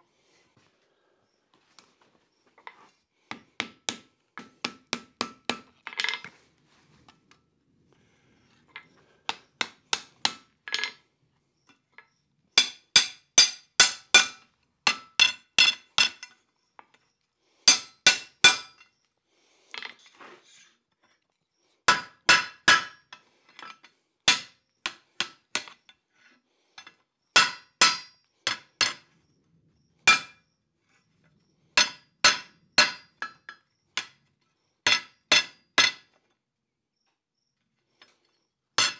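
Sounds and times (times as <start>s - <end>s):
hammer striking iron on anvil: 12.6s - 16.2s, 17.7s - 18.8s, 21.9s - 23.0s, 27.4s - 29.0s, 31.8s - 33.1s.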